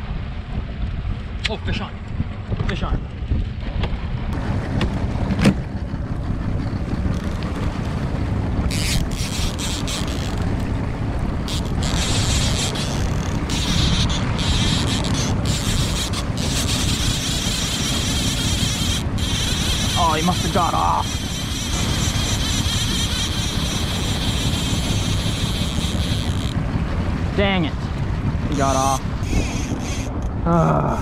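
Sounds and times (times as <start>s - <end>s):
small boat engine running: 0.0s - 31.0s
wind rumbling on microphone: 0.0s - 31.0s.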